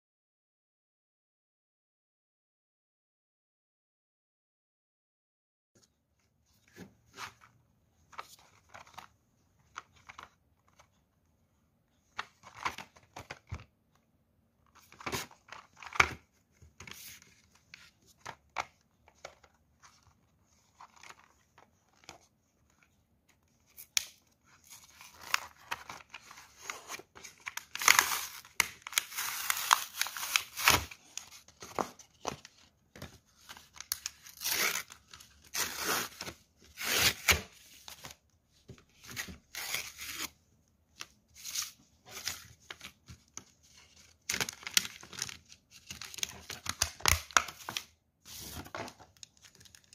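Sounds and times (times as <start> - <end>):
cardboard tearing: 24.9 - 31.3, 33.8 - 37.5.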